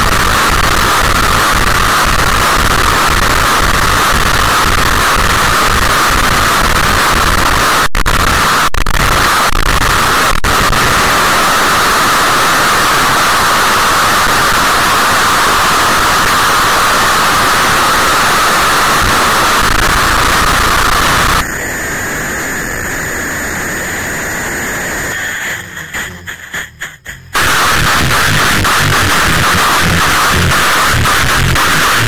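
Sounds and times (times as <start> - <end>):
harsh hissing static noise: 0.0 - 32.0.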